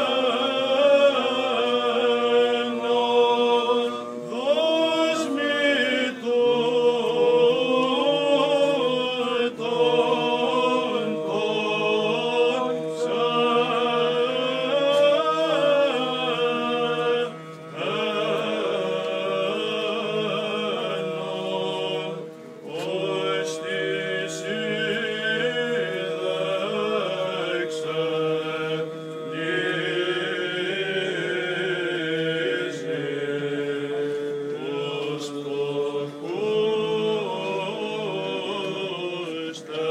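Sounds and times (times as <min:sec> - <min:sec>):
men singing unaccompanied chant: 0:00.0 - 0:39.9.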